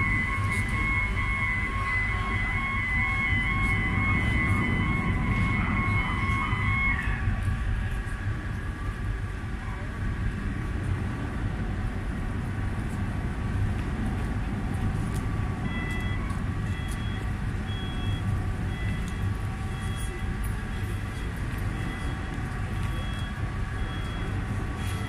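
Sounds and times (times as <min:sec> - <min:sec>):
electronic warning beep: 0:00.0 - 0:07.9, 0:15.6 - 0:25.0
ship engines rumbling: 0:00.0 - 0:25.0.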